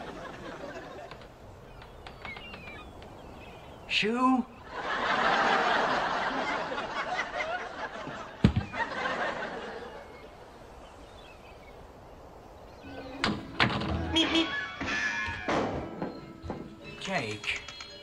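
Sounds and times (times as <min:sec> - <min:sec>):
audience laughing: 0:00.0 - 0:01.3, 0:04.7 - 0:10.3.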